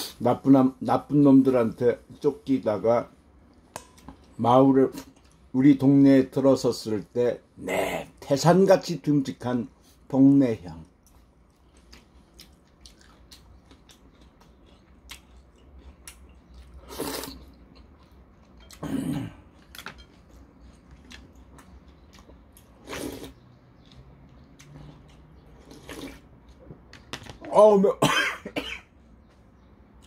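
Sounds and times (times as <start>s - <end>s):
slurping noodles: 16.8s - 17.5s, 22.8s - 23.4s, 25.6s - 26.2s.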